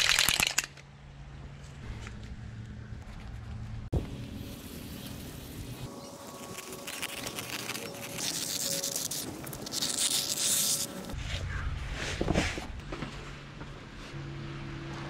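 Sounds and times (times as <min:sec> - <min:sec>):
rustling: 0:06.3 - 0:13.4.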